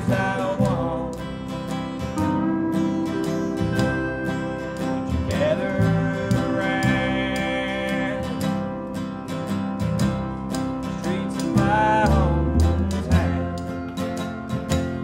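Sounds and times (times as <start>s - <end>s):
plucked upright bass: 0.0s - 15.0s
steady clicking rhythm: 0.0s - 15.0s
strummed guitar: 0.0s - 15.0s
lead instrument long note: 2.2s - 5.6s.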